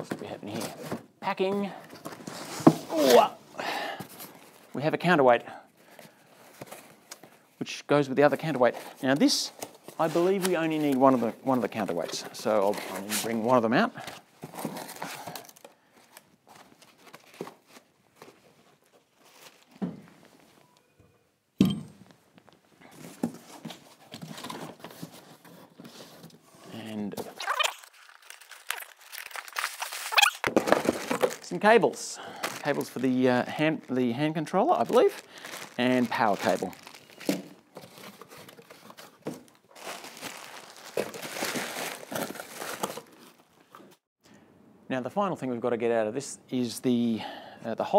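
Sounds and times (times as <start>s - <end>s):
cardboard packaging rustling: 0.0s - 3.4s, 5.8s - 7.4s, 8.4s - 20.6s, 22.4s - 44.0s
plastic bag crinkling: 27.4s - 43.6s
cardboard box rustling: 28.0s - 31.5s, 35.0s - 43.4s.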